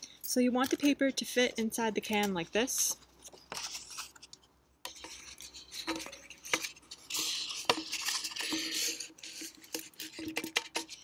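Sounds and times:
paper rustling and scraping: 2.1s - 4.3s, 4.9s - 11.0s.

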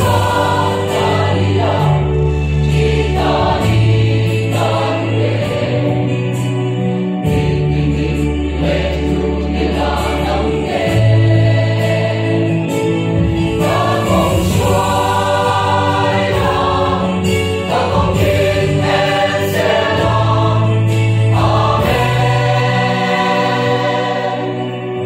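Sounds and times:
mixed choir singing in harmony: 0.0s - 25.0s.

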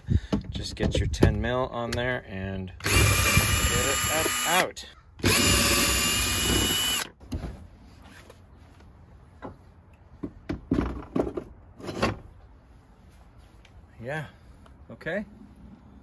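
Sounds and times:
cordless drill whine: 2.8s - 7.1s.

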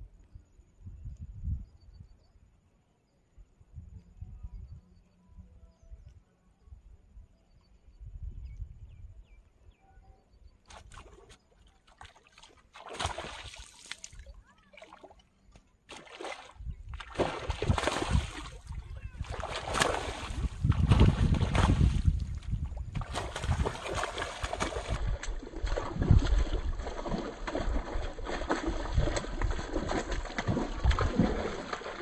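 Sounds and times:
water sloshing and splashing: 10.7s - 32.0s
low wind rumble: 16.6s - 31.8s.

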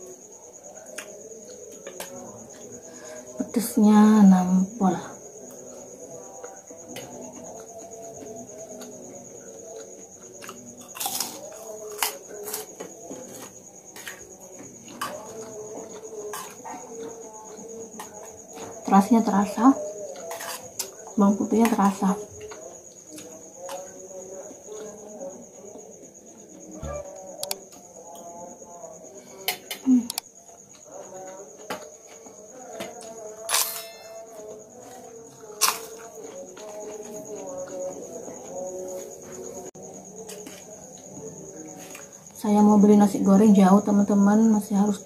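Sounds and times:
crickets trilling: 0.0s - 45.0s
food crunching: 8.7s - 18.4s
metal spoon clinking on plate: 33.4s - 34.4s.

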